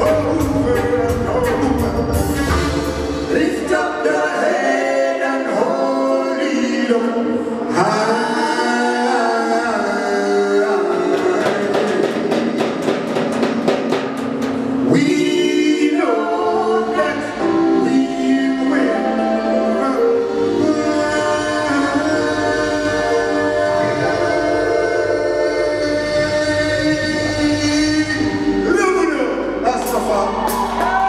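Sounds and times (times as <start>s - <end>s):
man singing: 0.0s - 4.6s, 7.8s - 12.4s, 14.9s - 29.7s
live reggae band: 0.0s - 31.0s
quick drum hits: 11.1s - 14.9s.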